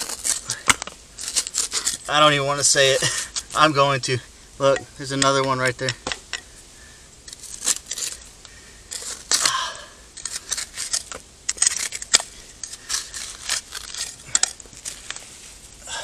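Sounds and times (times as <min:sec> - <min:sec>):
knife scraping hard dirt: 0:00.0 - 0:03.8, 0:07.3 - 0:15.7
brush sweeping soil: 0:11.7 - 0:15.8.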